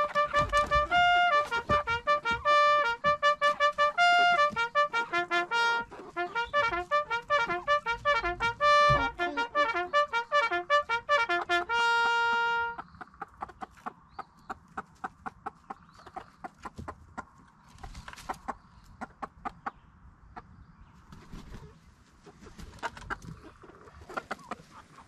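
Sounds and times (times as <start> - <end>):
bugle-style trumpet call: 0.0 - 12.8
chicken clucking: 0.0 - 25.0.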